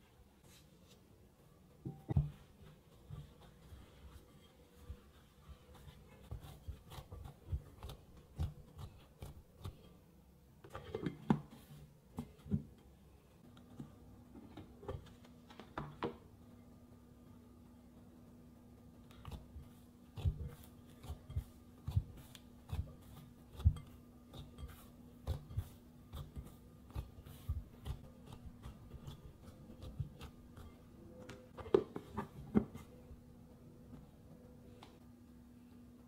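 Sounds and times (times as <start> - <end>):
dough kneading thumps: 1.8 - 10.0, 17.4 - 33.0.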